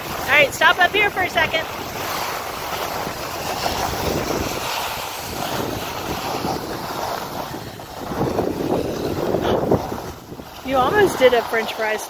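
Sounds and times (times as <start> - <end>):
skis scraping over snow: 0.0 - 12.0
wind on microphone: 0.0 - 12.0.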